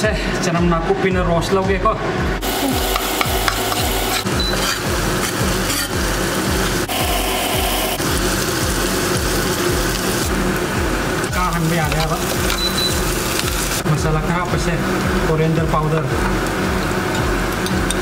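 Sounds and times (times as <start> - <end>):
spring onions sizzling in oil: 2.4 - 18.0
metal ladle scraping wok: 3.0 - 6.8.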